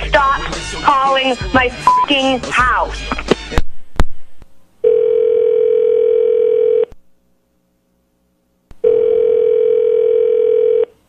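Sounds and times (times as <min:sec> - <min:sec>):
telephone ringing tone: 0:04.8 - 0:06.9, 0:08.8 - 0:10.9.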